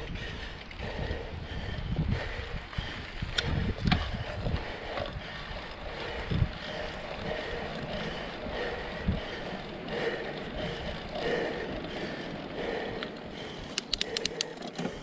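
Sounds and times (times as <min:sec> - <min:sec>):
wind across microphone: 0:00.0 - 0:09.6
bike tyres rumbling on dirt: 0:00.0 - 0:13.7
bike rattling: 0:00.0 - 0:15.0.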